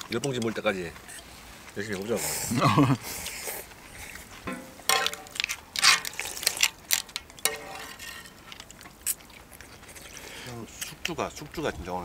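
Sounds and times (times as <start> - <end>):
people slurping noodles: 0.5 - 4.4, 9.0 - 11.0.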